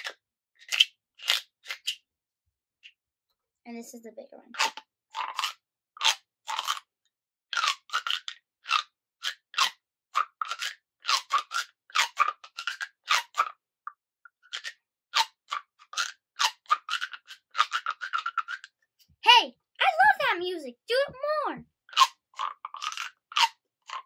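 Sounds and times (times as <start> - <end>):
plastic pop tube crackling pops: 7.6 - 13.6, 14.5 - 18.7, 21.9 - 24.0.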